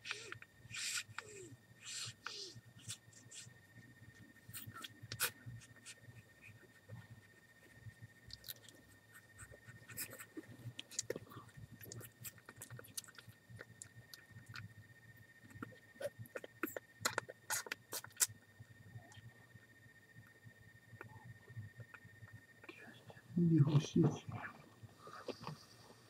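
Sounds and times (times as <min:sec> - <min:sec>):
puppies suckling wet clicks: 0:10.0 - 0:14.7, 0:15.5 - 0:18.3.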